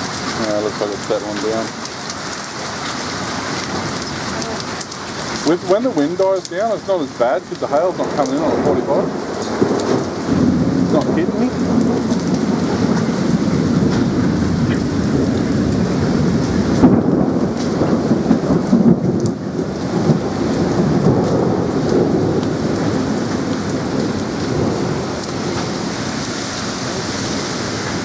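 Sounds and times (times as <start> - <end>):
heavy rain with hail: 0.0 - 28.0.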